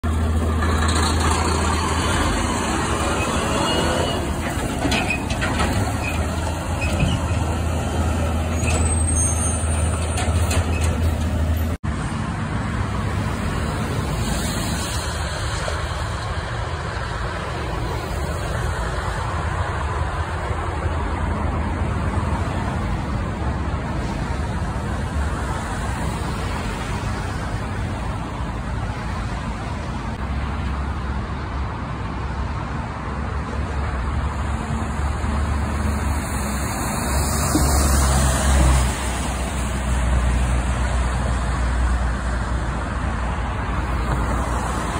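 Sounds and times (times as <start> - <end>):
diesel truck engine rumbling: 0.0 - 44.9
highway traffic: 0.0 - 44.9
high squeal: 0.8 - 5.4, 8.4 - 11.0.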